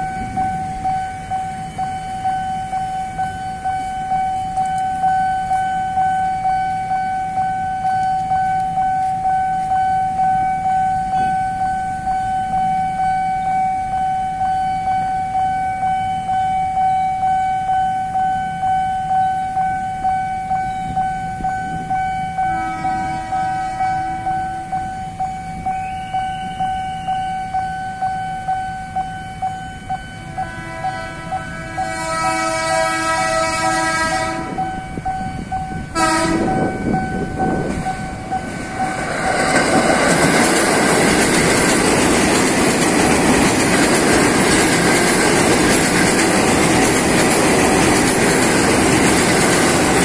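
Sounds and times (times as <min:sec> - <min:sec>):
level crossing warning bell: 0:00.0 - 0:50.0
train horn: 0:11.0 - 0:12.1, 0:20.6 - 0:27.6, 0:30.1 - 0:38.3.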